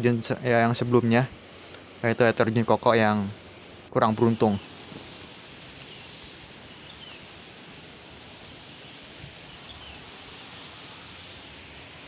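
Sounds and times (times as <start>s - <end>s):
outdoor background hiss: 0.0s - 12.0s
faint bird chirps: 3.2s - 8.1s, 9.2s - 11.4s.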